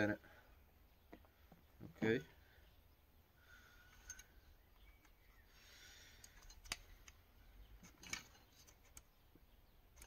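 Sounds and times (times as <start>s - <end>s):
plastic clicks: 6.2s - 7.2s.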